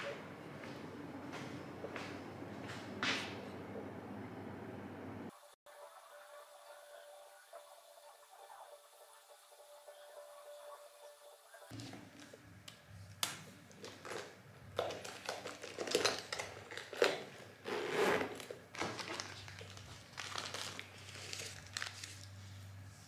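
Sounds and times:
low steady hum: 0:00.0 - 0:05.3.

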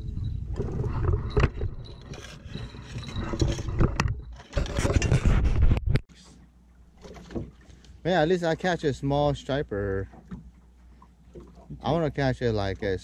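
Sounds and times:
wind rumbling on microphone: 0:00.0 - 0:06.1
boat scrapes and knocks: 0:00.5 - 0:05.9.

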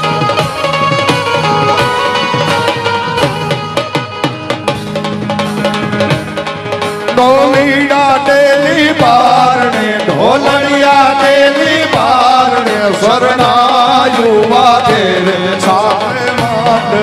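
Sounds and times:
drums and instruments: 0:00.0 - 0:17.0
man singing folk song: 0:07.2 - 0:17.0.

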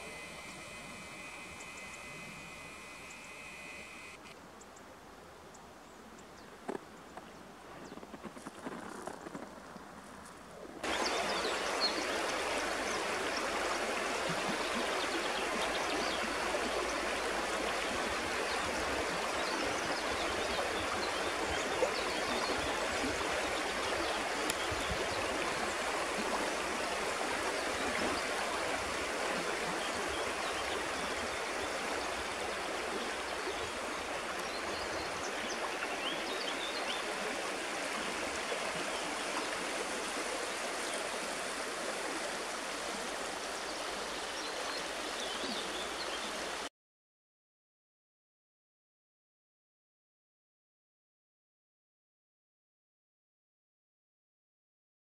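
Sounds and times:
river rushing over stones: 0:10.8 - 0:45.1.

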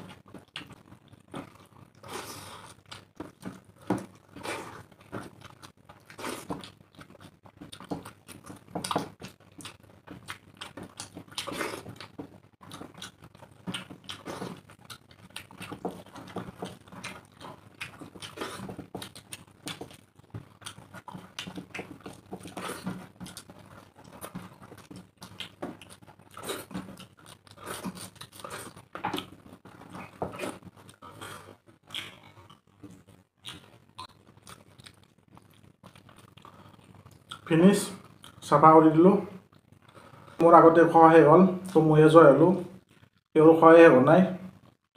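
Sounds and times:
wet chewing and lip-smacking: 0:00.0 - 0:38.4, 0:42.8 - 0:43.3.

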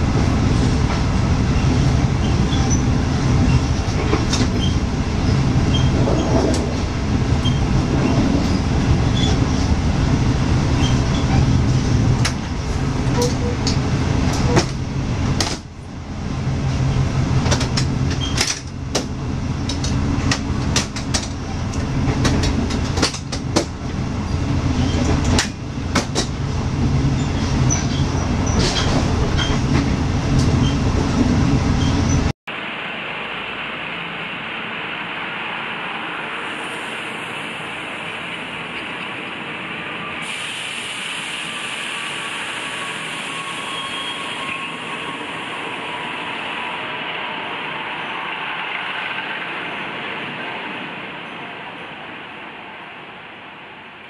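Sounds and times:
train wheels rumbling on rails: 0:00.0 - 0:32.3
sharp clicks and knocks: 0:17.4 - 0:23.8, 0:25.0 - 0:26.4.

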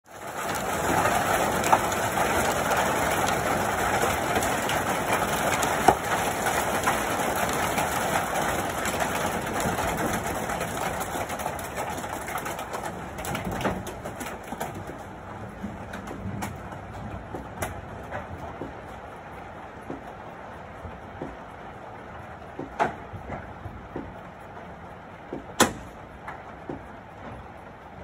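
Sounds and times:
hail and rain clattering: 0:00.1 - 0:28.0
sharp hailstone hits: 0:25.6 - 0:26.0.

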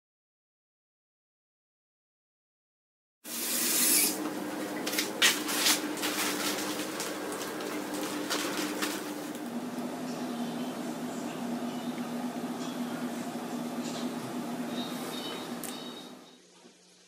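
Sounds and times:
room hum: 0:03.3 - 0:17.0.

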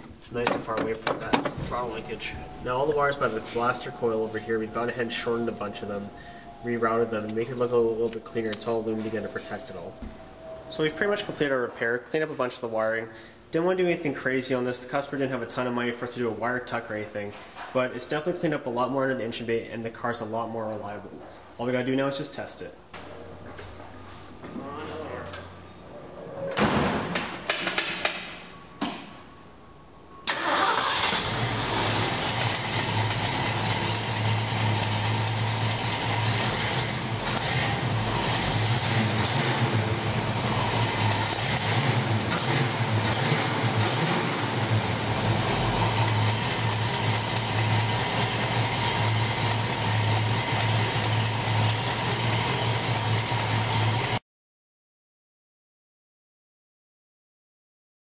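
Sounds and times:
car engine cranking and idling: 0:00.0 - 0:10.5, 0:30.2 - 0:54.2.

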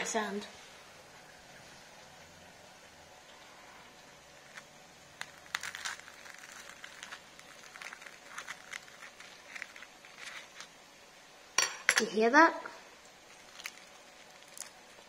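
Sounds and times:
knife crunching through fried batter: 0:04.4 - 0:10.7.

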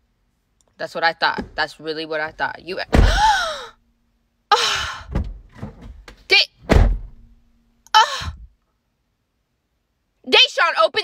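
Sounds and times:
car door thudding shut: 0:02.9 - 0:03.3, 0:05.1 - 0:07.4
dull thunks on car door: 0:02.9 - 0:03.3, 0:05.1 - 0:07.4.

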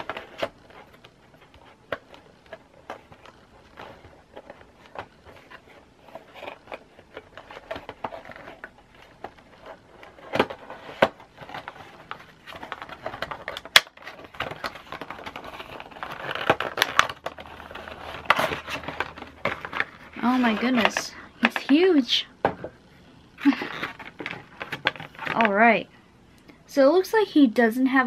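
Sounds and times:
cardboard rustling: 0:00.0 - 0:22.7, 0:23.4 - 0:25.7
cardboard scraping and tapping: 0:01.4 - 0:21.8.

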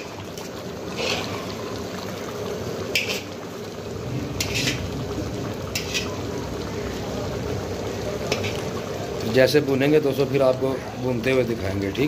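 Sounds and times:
gravy bubbling: 0:00.0 - 0:12.0
metal spatula scraping pan: 0:00.9 - 0:01.5, 0:02.9 - 0:03.3, 0:04.3 - 0:05.0, 0:05.7 - 0:06.2, 0:08.3 - 0:08.7.

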